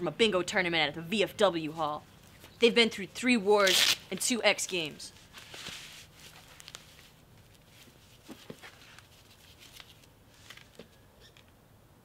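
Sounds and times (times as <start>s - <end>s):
knee pad rustling and clicking: 5.4s - 11.5s.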